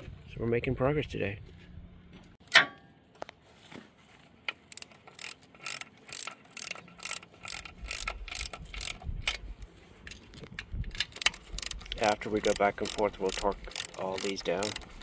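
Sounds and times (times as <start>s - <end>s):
ratchet wrench clicking: 4.7s - 9.5s, 10.9s - 15.0s.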